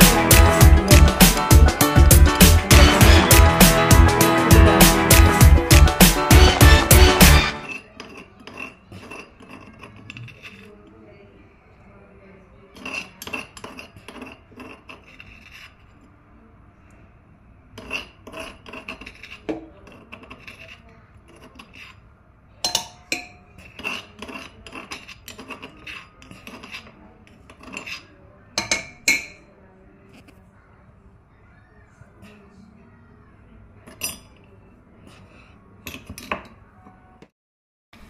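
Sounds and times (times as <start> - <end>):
metal spoon scraping steel pot: 0.0 - 10.9, 12.7 - 16.1, 17.7 - 22.1, 22.7 - 29.5, 33.8 - 36.3.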